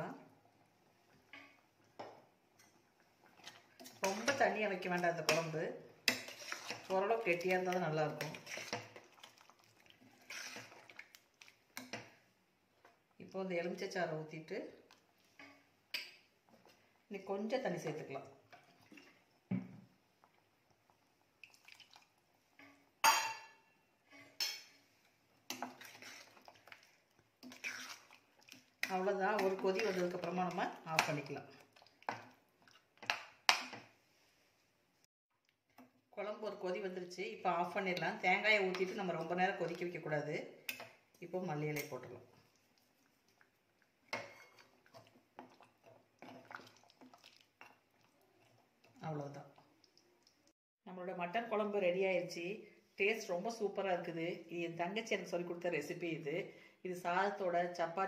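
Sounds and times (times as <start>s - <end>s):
ladle stirring thick curry: 0.5s - 13.2s, 24.2s - 34.4s, 35.7s - 50.5s
ladle clinking on metal pot: 23.0s - 23.7s.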